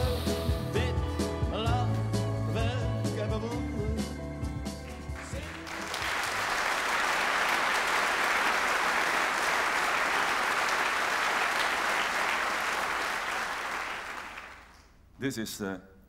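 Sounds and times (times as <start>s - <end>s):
audience applauding: 4.8s - 14.9s.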